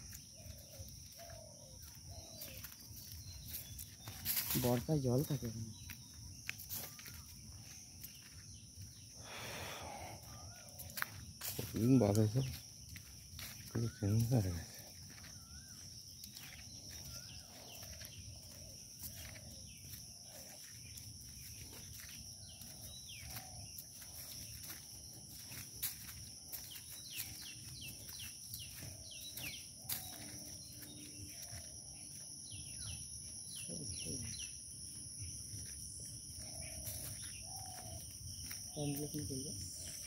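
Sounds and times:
bird chirping: 0:00.0 - 0:40.0
footsteps crunching on dry leaves: 0:00.0 - 0:40.0
insects droning: 0:00.0 - 0:40.0.

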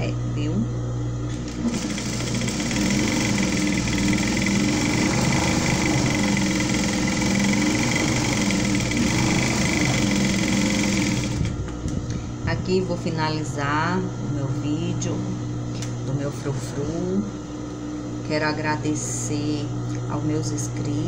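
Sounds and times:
sewing machine motor hum: 0:01.3 - 0:11.7.

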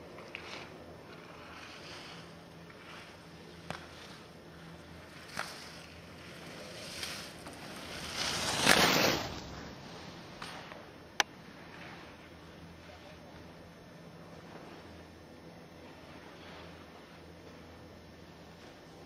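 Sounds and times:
skis scraping on snow: 0:00.0 - 0:10.8.

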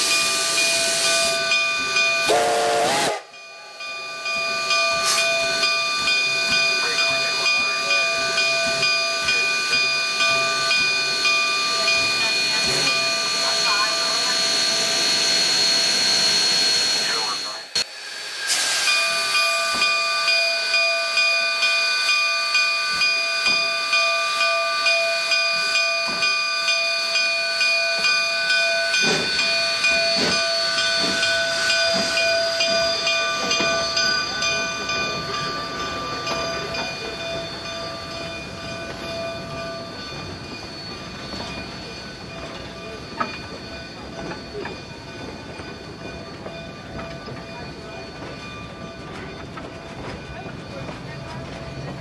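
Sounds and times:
steam locomotive exhaust beats: 0:00.0 - 0:52.0
train cars rolling: 0:00.0 - 0:52.0
high-pitched whine: 0:12.5 - 0:19.8.

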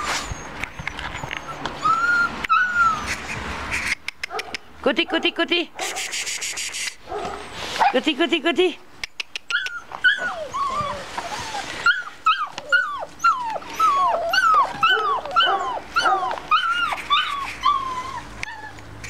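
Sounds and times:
puppies whining: 0:00.0 - 0:03.4, 0:09.4 - 0:19.0.

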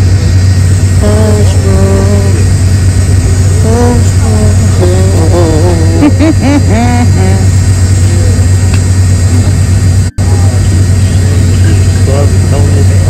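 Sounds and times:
jet cabin drone: 0:00.0 - 0:13.0
person speaking: 0:01.0 - 0:02.6, 0:03.4 - 0:08.6.

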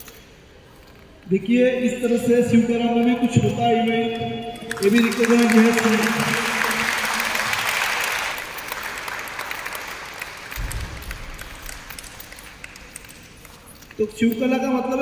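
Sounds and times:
group applauding: 0:04.7 - 0:14.0
low thump: 0:10.6 - 0:11.4.

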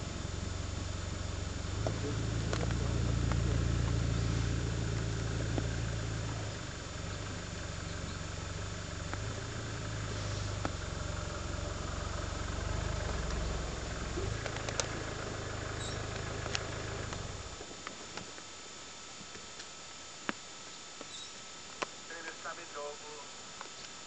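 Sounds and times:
vehicle engine idling: 0:00.0 - 0:18.0.

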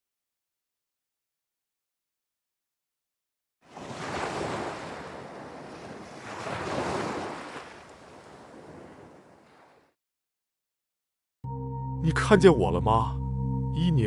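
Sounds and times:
sea waves washing in: 0:03.6 - 0:10.0.

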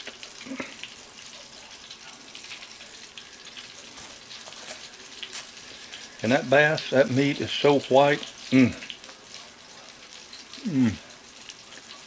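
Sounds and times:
hot oil sizzling in fryer: 0:00.0 - 0:12.0.

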